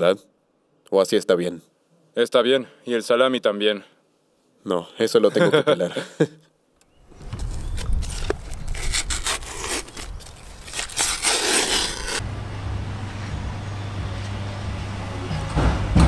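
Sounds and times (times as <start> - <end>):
sausage casing being peeled: 7.4 - 12.2
steady low hum: 12.1 - 16.0.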